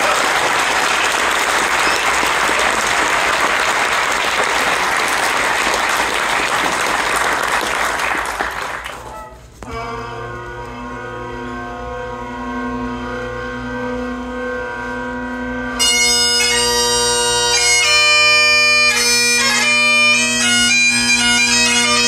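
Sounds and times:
audience applauding: 0:00.0 - 0:09.3
bagpipe drones and chanter: 0:09.6 - 0:22.0.

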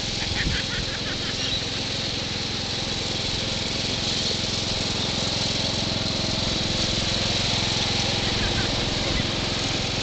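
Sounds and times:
ride-on mower engine rattling: 0:00.0 - 0:10.0.

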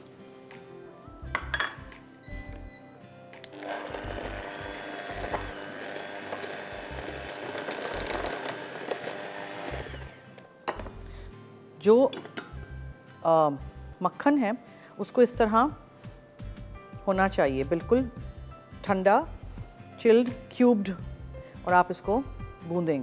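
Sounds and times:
background music: 0:00.0 - 0:23.0
bowl clinks: 0:01.3 - 0:01.9
electric mixer running: 0:03.5 - 0:10.4.

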